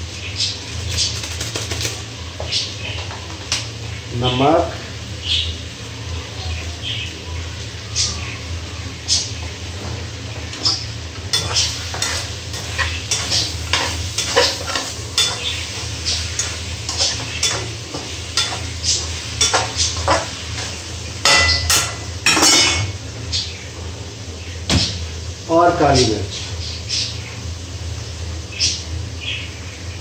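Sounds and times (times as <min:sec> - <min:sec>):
frying sizzle: 0:00.0 - 0:30.0
metal utensil scraping a wok: 0:11.3 - 0:22.9.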